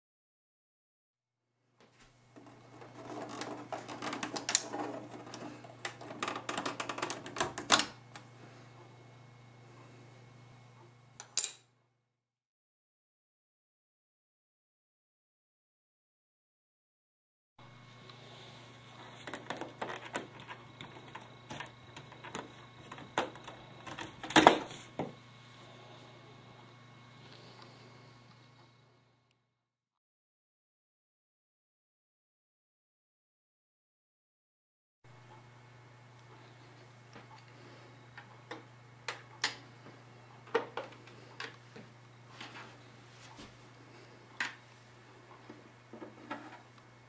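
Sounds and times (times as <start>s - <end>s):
steady low hum: 2.0s - 12.0s, 17.6s - 29.4s, 35.1s - 47.0s.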